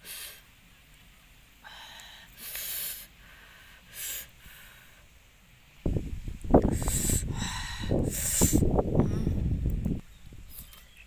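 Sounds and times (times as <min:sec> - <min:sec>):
short hissing breaths: 0:00.0 - 0:00.5, 0:01.6 - 0:05.2, 0:06.6 - 0:09.5.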